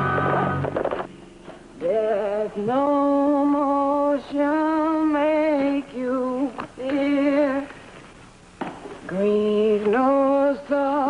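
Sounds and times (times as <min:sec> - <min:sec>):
person singing unaccompanied: 0:01.8 - 0:07.8, 0:09.1 - 0:11.0.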